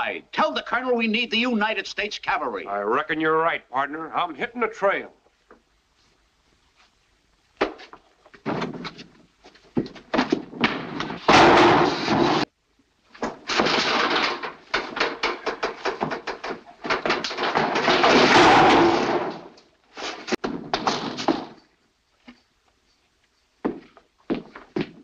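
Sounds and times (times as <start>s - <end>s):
wooden barrels crashing and banging: 8.4s - 9.1s, 9.9s - 12.5s, 13.2s - 21.7s.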